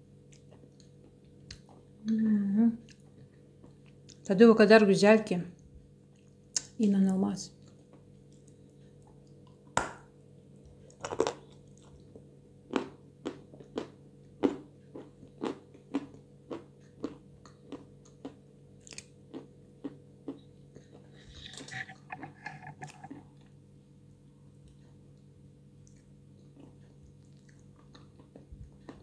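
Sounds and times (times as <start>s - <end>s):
crunchy chewing: 10.6s - 23.6s, 24.5s - 29.0s
wet mouth sounds: 20.9s - 23.3s.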